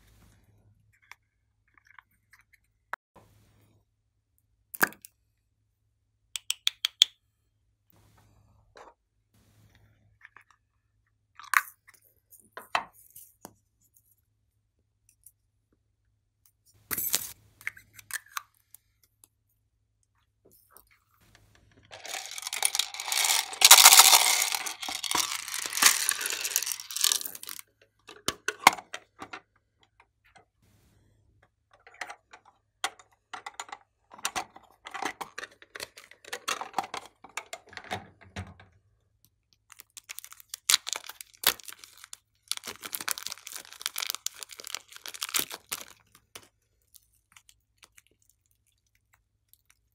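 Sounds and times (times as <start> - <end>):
plastic rattling and rustling: 21.6 - 29.5, 31.8 - 38.7, 39.7 - 46.5
plastic wrapper crinkling: 21.9 - 27.6, 39.7 - 48.4.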